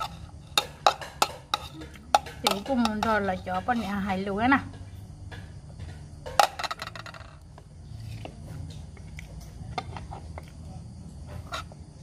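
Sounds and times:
spoon clicking on plates: 0.0s - 3.8s.

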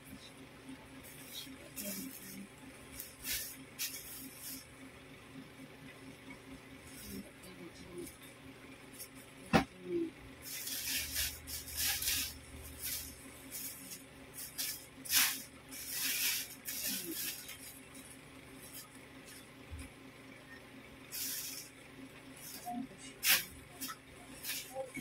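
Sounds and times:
clothes rustling in plastic bag: 1.1s - 4.6s, 10.4s - 18.0s, 22.4s - 25.0s.

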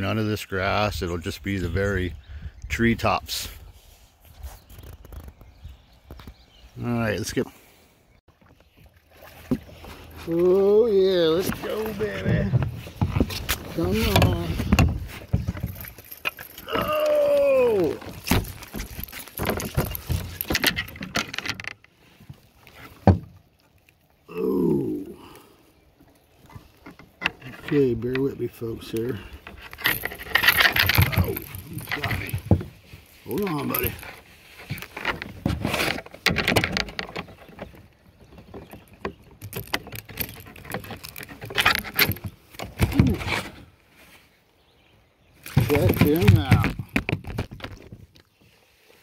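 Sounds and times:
fish splashing and thrashing: 8.3s - 10.4s, 11.2s - 24.3s
landing net and gear rattling: 9.4s - 21.9s, 26.5s - 43.7s, 45.4s - 48.1s.

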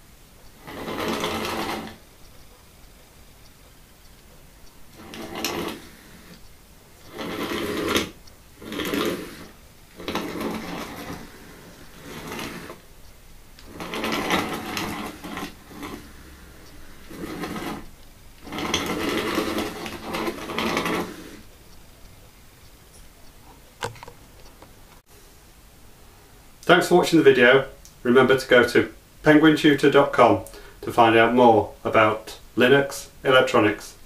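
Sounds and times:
small gear motors whining: 4.7s - 21.5s.

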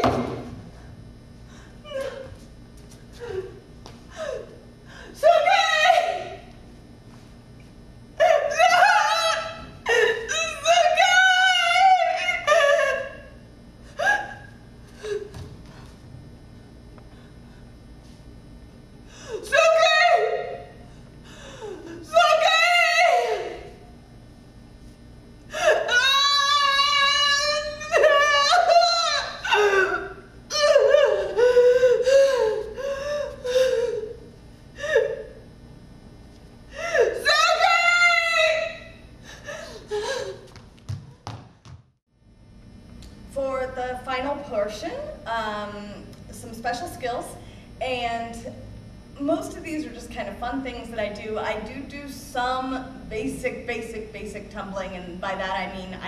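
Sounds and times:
woman wailing and sobbing: 1.8s - 2.4s, 3.2s - 6.4s, 8.2s - 13.3s, 14.0s - 15.3s, 25.5s - 34.2s, 36.8s - 40.4s.

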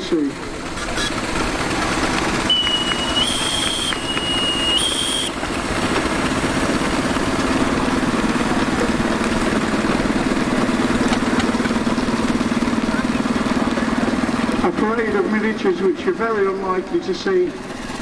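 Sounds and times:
steam engines running: 0.0s - 18.0s
shrill steam whistle: 2.5s - 5.4s.

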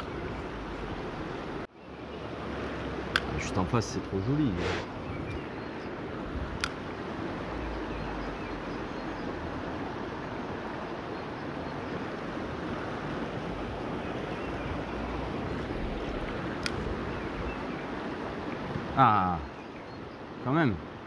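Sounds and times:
river current rushing: 0.0s - 21.0s.

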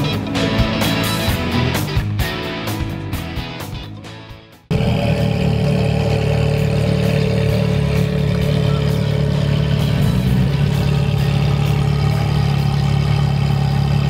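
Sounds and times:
sports car engine idling: 4.7s - 14.0s.

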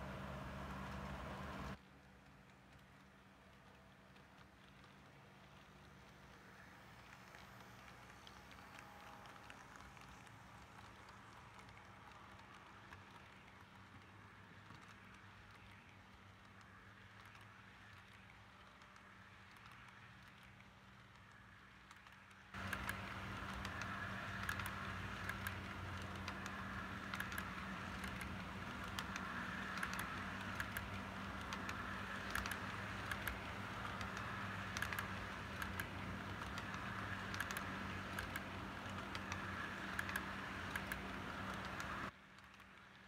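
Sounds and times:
rolling hum: 0.0s - 13.8s, 22.5s - 42.1s
model train wheels clicking: 0.0s - 43.0s.

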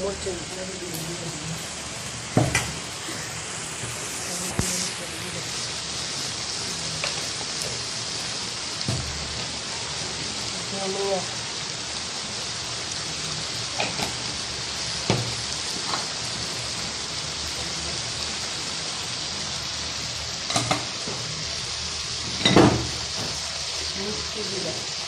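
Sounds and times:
food sizzling in hot oil: 0.0s - 25.0s
knocks on a pan: 2.4s - 2.8s, 15.1s - 15.3s.

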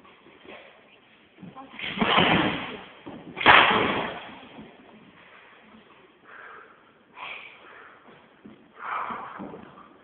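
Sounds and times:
loud body collision thump: 1.8s - 4.8s.

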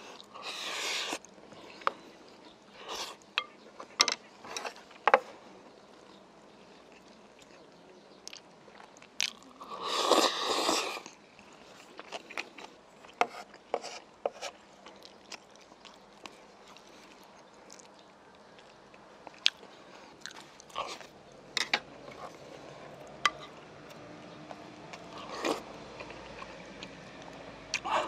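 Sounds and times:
chewing: 0.0s - 13.7s, 14.5s - 28.0s
slurping food: 0.2s - 1.9s, 9.6s - 11.1s, 25.1s - 26.4s.

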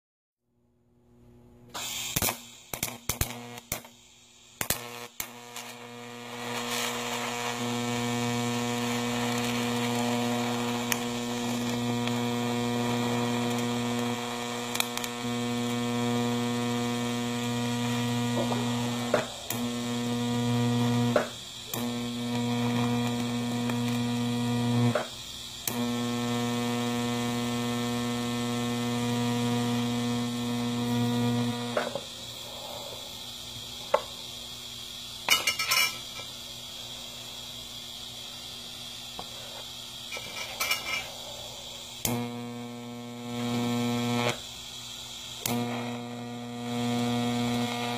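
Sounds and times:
welding arc humming: 1.7s - 47.9s.

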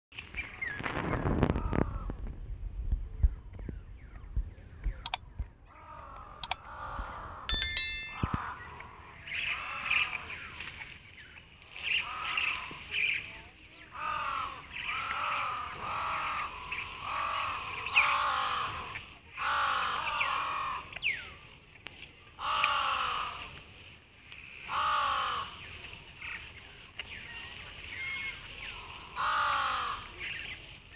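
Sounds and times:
crows cawing: 14.0s - 14.6s, 19.4s - 20.8s, 22.4s - 23.4s, 24.7s - 25.5s, 29.2s - 30.1s.

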